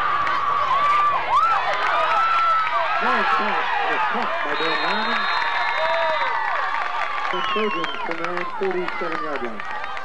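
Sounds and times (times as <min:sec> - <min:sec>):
crowd cheering and yelling: 0:00.0 - 0:10.0
referee whistle blast: 0:04.6 - 0:06.3.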